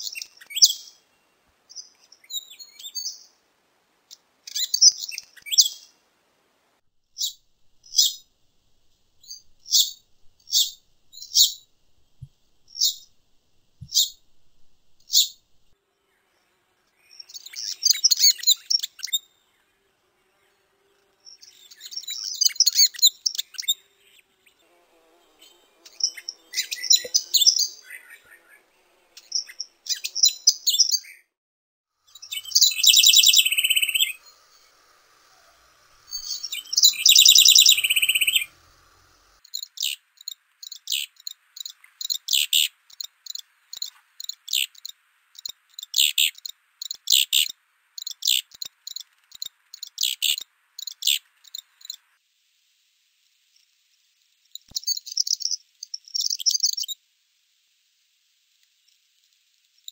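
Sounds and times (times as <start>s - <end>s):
wren trilled phrases: 7.2s - 19.7s, 25.2s - 30.9s, 32.0s - 52.1s
wren singing tumbling high notes: 36.0s - 39.4s.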